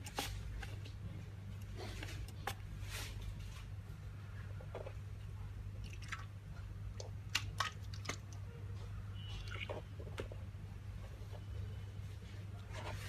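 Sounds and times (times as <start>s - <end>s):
low steady hum: 0.0s - 13.0s
wet squishing: 5.7s - 8.5s, 9.4s - 9.8s.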